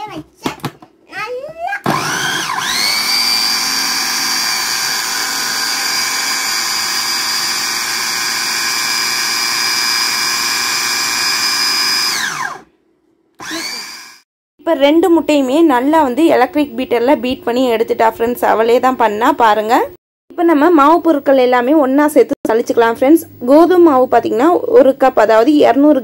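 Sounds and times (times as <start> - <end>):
food chopper motor whine: 1.8 - 12.7, 13.4 - 14.2.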